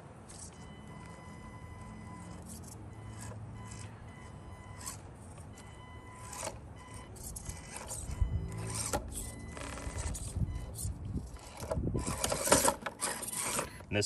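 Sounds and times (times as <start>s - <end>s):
rc car motor and gear whine: 0.0s - 13.9s
tires scraping on rocks: 0.0s - 14.0s.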